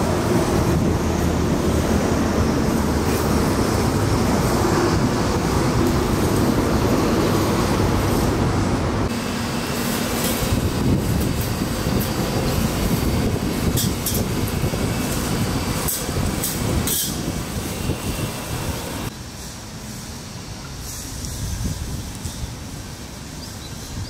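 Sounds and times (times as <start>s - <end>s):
city traffic rumble: 0.0s - 24.0s
high hissing squeals: 9.1s - 22.7s.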